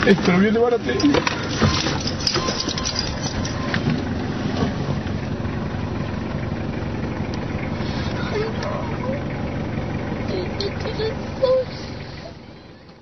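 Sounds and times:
road noise: 0.0 - 13.0
vehicle engine running: 0.0 - 13.0
clicks and rattles: 1.0 - 4.0.

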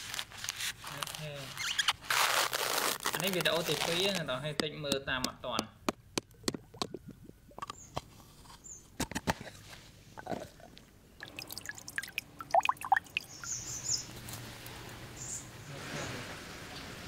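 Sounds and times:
water drops plinking in shell: 11.2 - 13.7.

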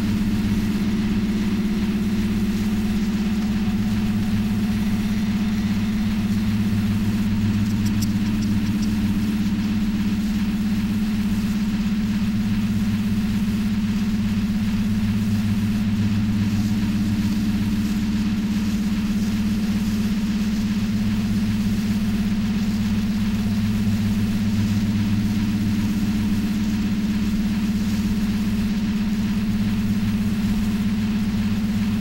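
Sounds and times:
steady low drone: 0.0 - 19.6
thin hiss: 2.5 - 10.8.

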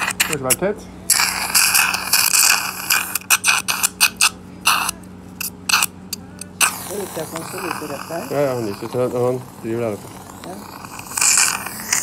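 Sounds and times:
surgical suction slurping: 1.1 - 5.0, 6.6 - 12.0.

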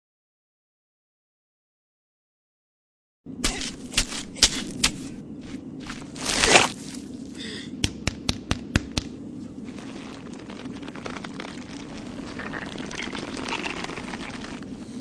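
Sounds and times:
low steady hum: 3.3 - 15.0.

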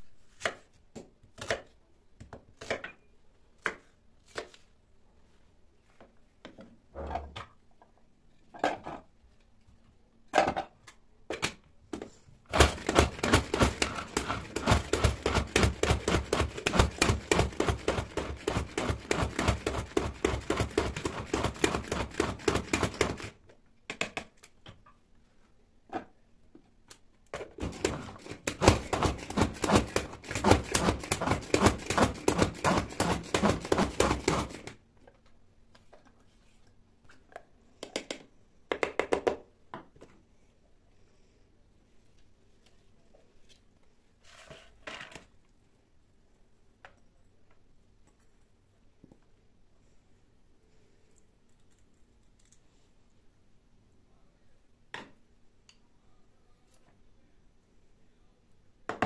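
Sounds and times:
food chopper rhythmic clatter: 12.5 - 23.3, 27.6 - 34.7.

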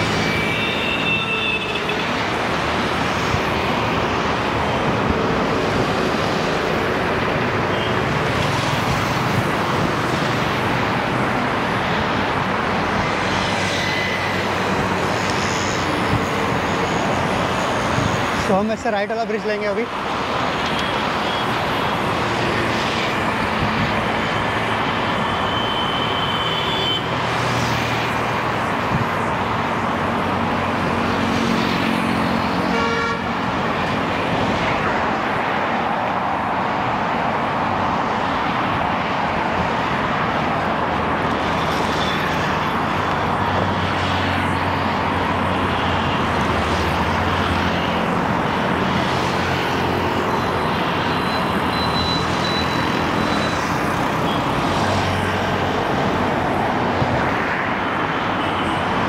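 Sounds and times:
road traffic noise: 0.0 - 59.0
vehicle engines passing: 0.0 - 59.0
car horns honking: 32.7 - 33.3.

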